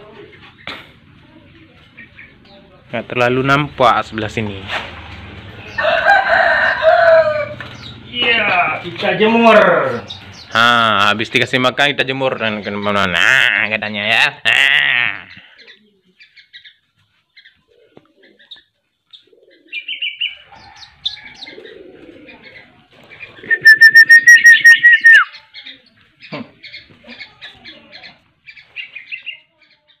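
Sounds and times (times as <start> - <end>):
small birds chirping: 0.0 - 4.2, 7.4 - 11.6, 12.3 - 13.4, 15.2 - 30.0
rapid high bird trill: 23.4 - 25.4.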